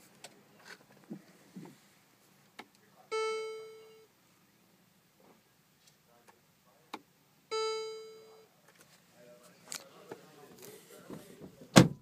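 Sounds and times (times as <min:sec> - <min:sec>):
electronic chime: 0:03.1 - 0:04.1.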